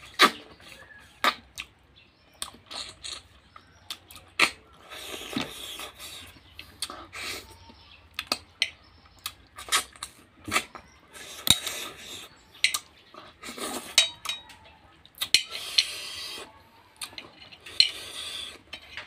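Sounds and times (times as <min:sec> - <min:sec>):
mouth noises of eating: 0:00.0 - 0:19.0
fingers and shells clinking on metal bowl: 0:13.9 - 0:14.6.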